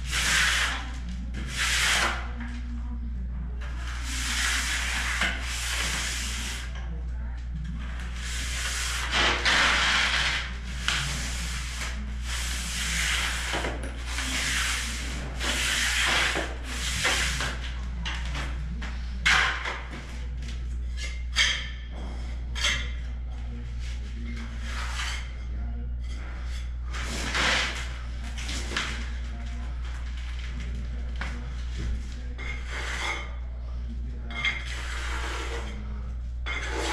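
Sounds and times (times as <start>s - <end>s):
steady low hum: 0.0s - 36.9s
trowel scraping mortar: 3.8s - 6.7s, 8.1s - 17.6s, 32.4s - 33.3s, 34.6s - 35.8s.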